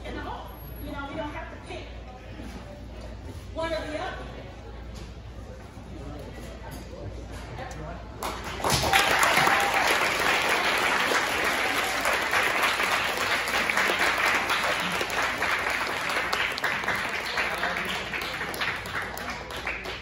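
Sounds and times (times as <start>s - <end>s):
audience applauding: 8.2s - 20.0s.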